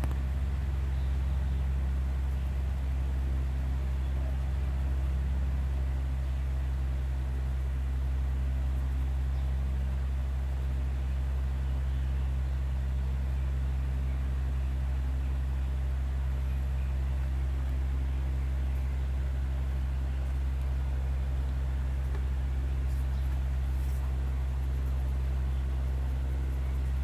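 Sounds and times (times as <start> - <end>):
low hum: 0.0 - 27.0.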